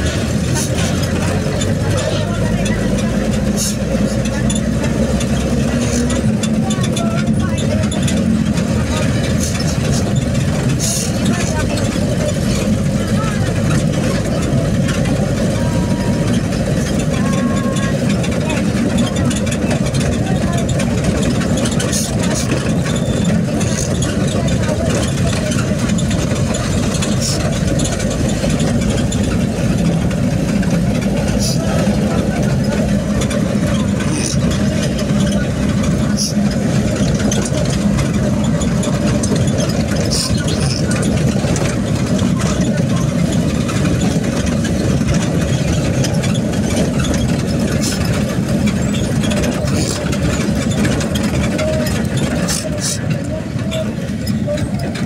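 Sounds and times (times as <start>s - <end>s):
vehicle engine and road noise: 0.0s - 55.0s.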